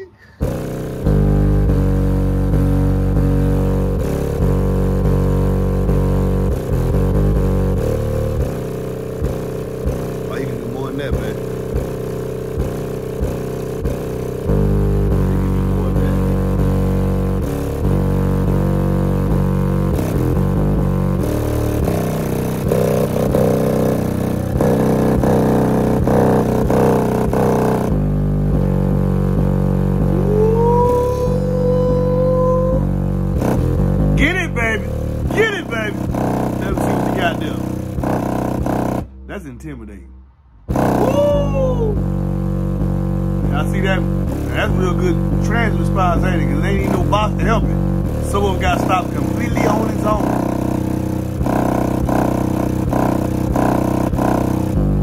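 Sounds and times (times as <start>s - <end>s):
subwoofer playing bass-heavy music: 0.0s - 55.0s
tone gliding upward: 30.0s - 33.0s, 40.8s - 42.0s.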